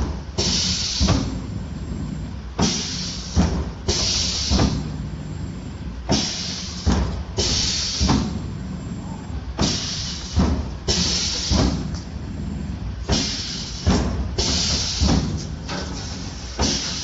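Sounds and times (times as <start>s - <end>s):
machine low thumps: 0.0s - 17.0s
machine hissing bursts: 0.4s - 1.4s, 2.6s - 4.9s, 6.1s - 8.4s, 9.6s - 11.9s, 13.0s - 17.0s.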